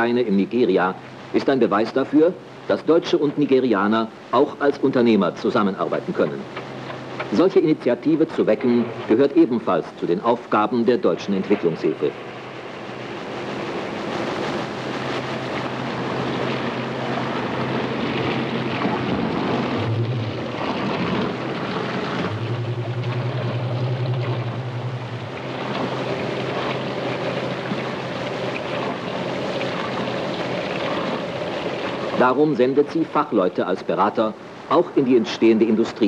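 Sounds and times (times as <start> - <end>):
machinery humming and rattling: 11.4 - 32.3
loud low buzz: 12.2 - 31.5.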